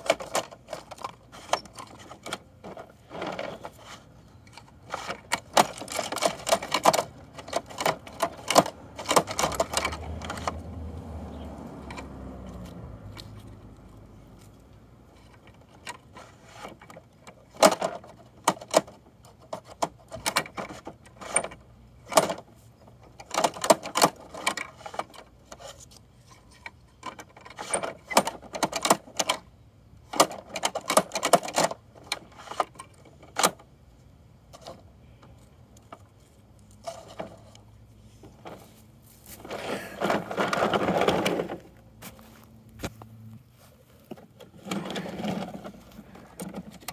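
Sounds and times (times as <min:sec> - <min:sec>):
plastic toys clattering: 0:00.0 - 0:10.6, 0:15.2 - 0:33.7, 0:38.3 - 0:41.7, 0:44.0 - 0:46.9
toy truck rolling over dirt: 0:00.0 - 0:10.9, 0:11.7 - 0:33.7, 0:34.5 - 0:43.0, 0:44.0 - 0:46.9.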